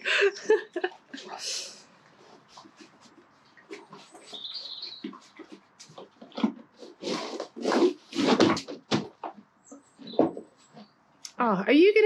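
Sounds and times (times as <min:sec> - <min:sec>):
horse snuffling and blowing: 0:01.1 - 0:09.4.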